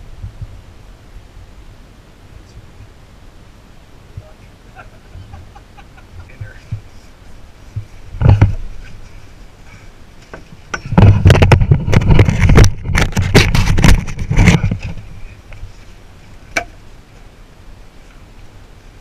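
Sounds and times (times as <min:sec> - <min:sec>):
camera housing rubbing on fabric: 0:10.8 - 0:15.8.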